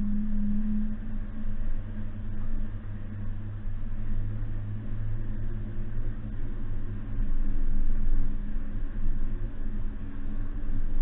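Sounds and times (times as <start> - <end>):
car engine droning: 0.0 - 6.5.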